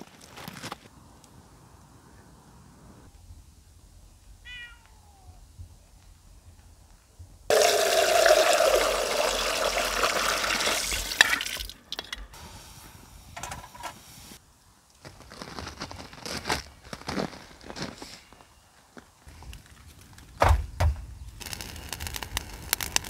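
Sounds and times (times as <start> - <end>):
cat meowing: 4.4 - 5.4
water gushing into a bucket: 7.5 - 11.8.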